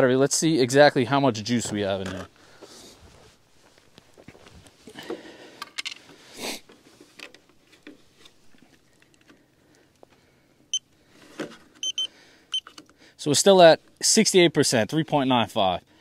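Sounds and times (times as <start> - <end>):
short high electronic beep: 11.8 - 12.1.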